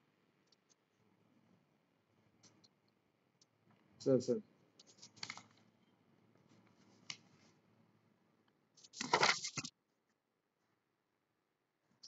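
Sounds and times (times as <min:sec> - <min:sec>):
rustling crackling handling noise: 0:08.8 - 0:09.7.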